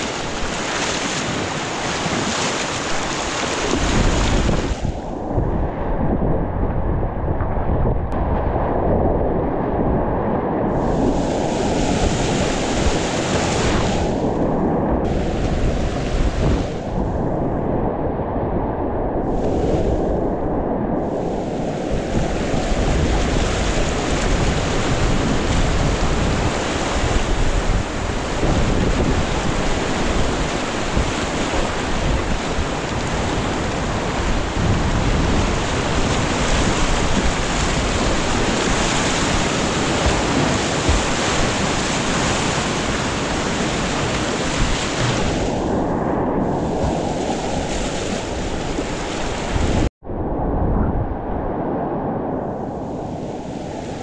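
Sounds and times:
whitewater rapids rushing: 0:00.0 - 0:04.6, 0:21.2 - 0:45.6.

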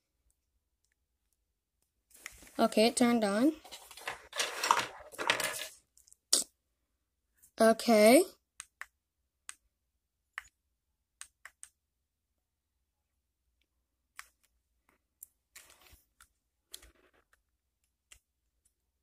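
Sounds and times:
plastic camera rustling: 0:03.6 - 0:05.8.

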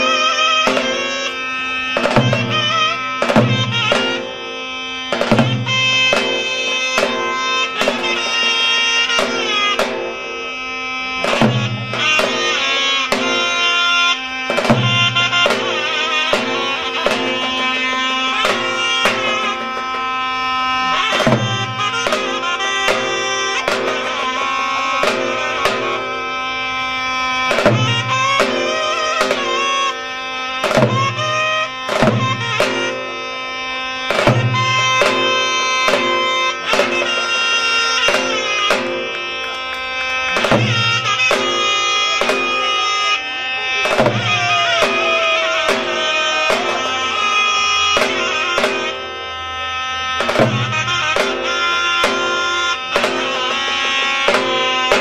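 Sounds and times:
reedy zurna melody: 0:00.0 - 0:55.0
davul bass strokes: 0:40.2 - 0:55.0.

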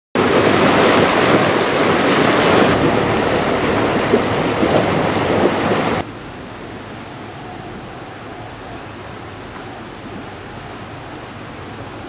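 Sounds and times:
river rushing: 0:00.2 - 0:06.0.

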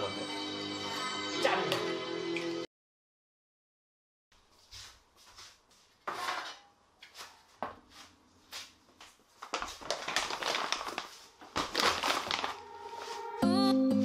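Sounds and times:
metal tray clattering on table: 0:06.1 - 0:06.7
plastic bag crinkling: 0:09.4 - 0:13.0.

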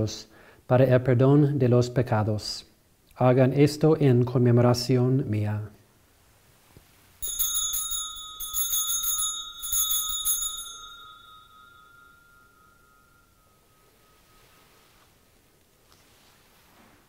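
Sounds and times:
altar bells ringing: 0:07.2 - 0:15.6.

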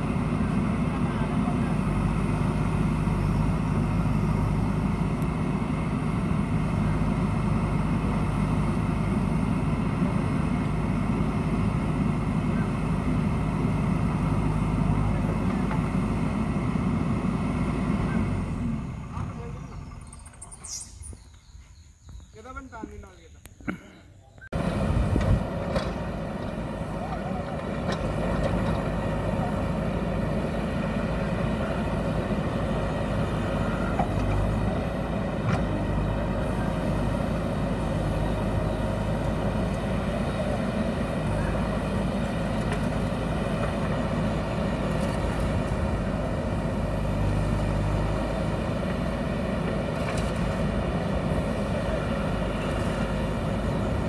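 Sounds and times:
diesel engine running: 0:00.0 - 0:20.7, 0:24.5 - 0:54.0.

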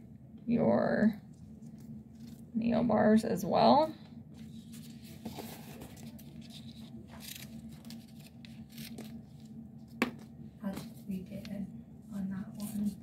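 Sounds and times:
tape rustling and crinkling: 0:01.2 - 0:02.6, 0:04.4 - 0:10.9.

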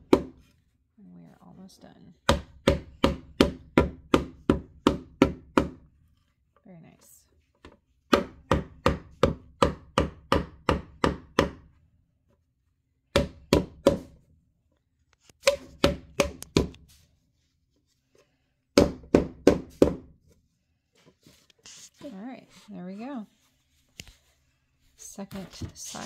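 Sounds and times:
hammer knocking on wood: 0:00.0 - 0:00.4, 0:02.3 - 0:05.8, 0:08.1 - 0:11.6, 0:13.1 - 0:14.1, 0:15.5 - 0:16.8, 0:18.8 - 0:20.1.

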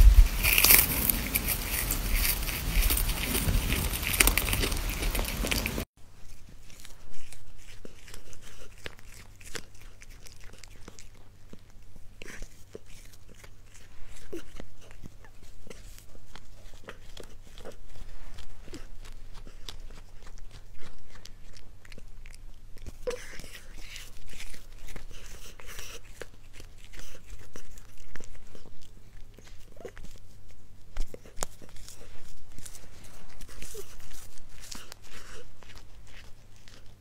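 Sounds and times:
cat chewing clicks: 0:00.4 - 0:05.8.

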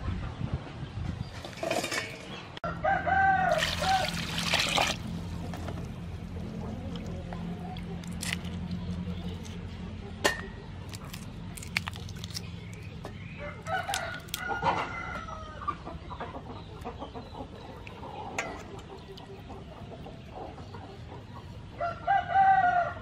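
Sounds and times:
chickens clucking: 0:01.3 - 0:22.0
rooster crowing: 0:02.6 - 0:04.4, 0:21.8 - 0:23.0
shrimp splashing in water: 0:03.5 - 0:05.4.

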